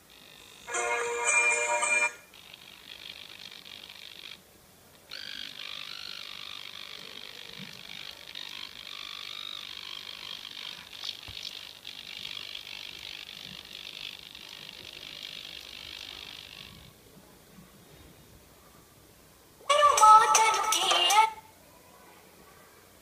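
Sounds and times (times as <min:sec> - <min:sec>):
tinny music from small speaker: 0:00.7 - 0:02.3, 0:19.6 - 0:21.5.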